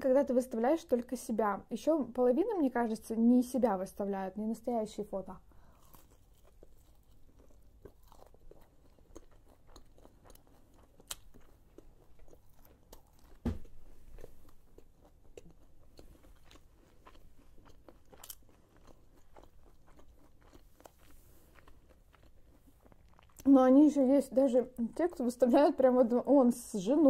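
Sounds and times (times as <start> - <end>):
chewing crunchy food: 5.6 - 23.7
dull thump: 13.4 - 13.8.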